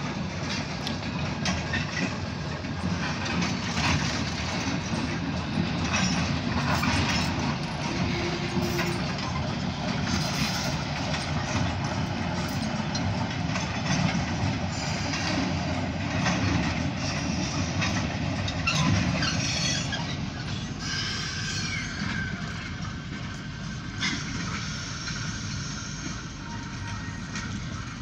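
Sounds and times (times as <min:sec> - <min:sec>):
freight train rumbling past: 0:00.0 - 0:28.0
faint wheel squeal: 0:18.6 - 0:22.7, 0:24.0 - 0:27.2.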